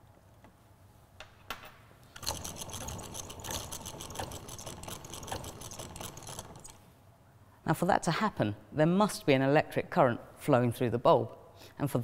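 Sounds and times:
hand generator whirring and clicking: 0:02.1 - 0:06.8.

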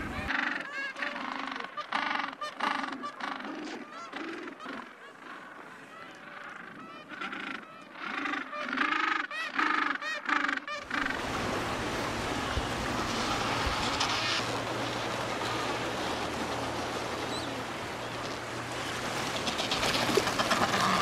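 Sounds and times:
honking seabird calls: 0:00.0 - 0:21.0
surf rushing: 0:10.9 - 0:21.0.

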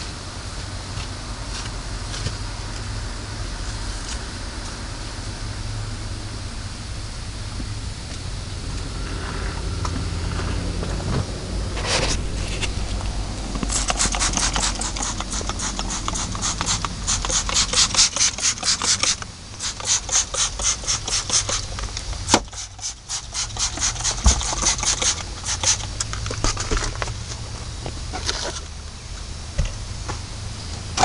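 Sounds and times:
cloth rubbing plastic dashboard: 0:10.0 - 0:21.8.

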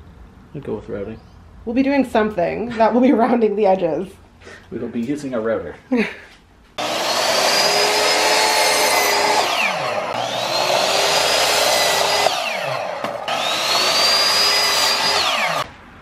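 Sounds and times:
electric miter saw whine: 0:06.8 - 0:15.7.

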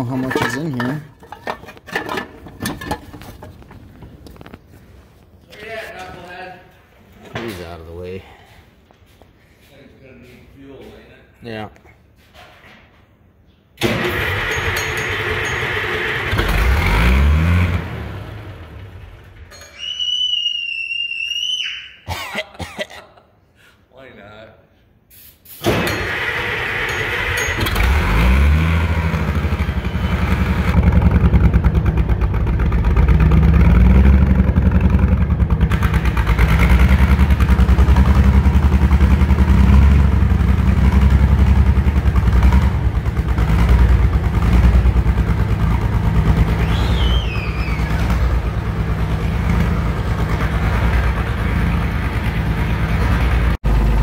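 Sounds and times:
tractor engine running unevenly: 0:13.8 - 0:19.5, 0:25.8 - 0:54.0.

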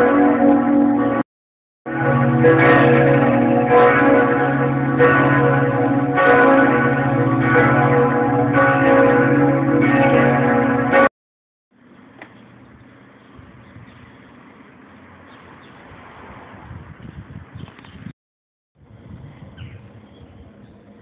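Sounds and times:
church bells ringing: 0:00.0 - 0:01.2, 0:01.9 - 0:11.1.

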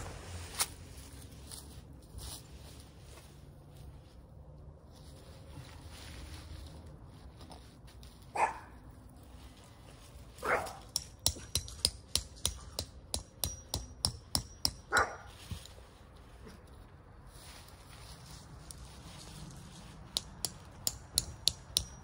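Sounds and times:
dog barking: 0:08.4 - 0:08.8, 0:10.4 - 0:10.8, 0:14.9 - 0:15.3
hammering metal tent stake: 0:10.8 - 0:15.3, 0:20.1 - 0:22.0.

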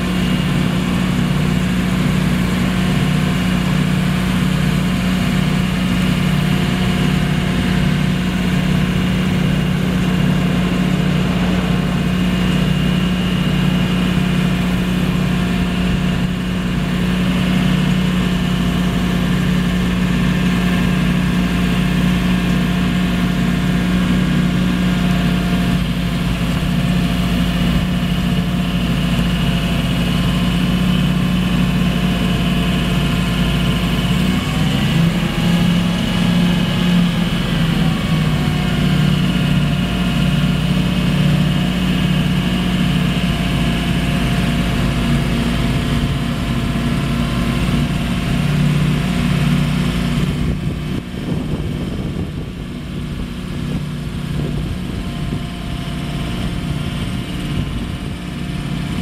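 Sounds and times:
truck engine running: 0:00.0 - 0:59.0.

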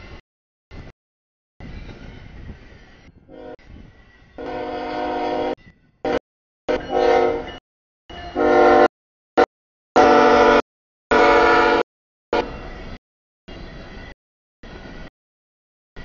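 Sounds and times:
low train rumble: 0:00.0 - 0:00.9, 0:01.6 - 0:08.9, 0:10.0 - 0:15.1
train air horn blasts: 0:03.3 - 0:03.6, 0:04.4 - 0:12.6.

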